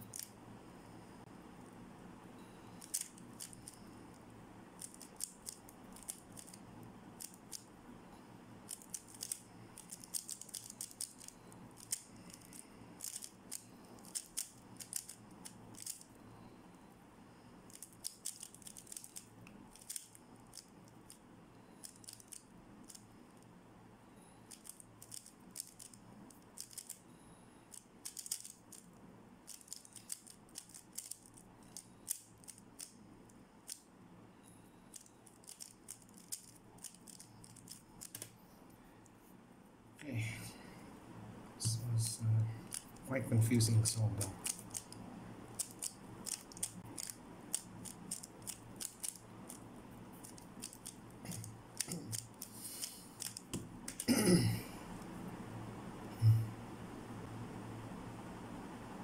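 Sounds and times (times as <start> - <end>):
puzzle cube plastic clicks: 2.8 - 3.8, 4.8 - 6.6, 7.2 - 7.7, 8.7 - 16.1, 17.7 - 21.2, 21.8 - 23.1, 24.5 - 27.1, 27.7 - 28.9, 29.5 - 33.0, 34.9 - 38.4, 42.6 - 43.0, 44.2 - 45.0, 45.6 - 49.6, 50.2 - 54.1.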